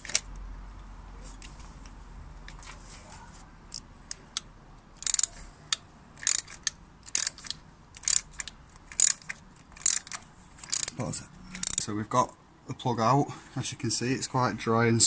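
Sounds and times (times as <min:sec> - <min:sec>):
socket ratchet clicking: 0:03.7 - 0:11.9.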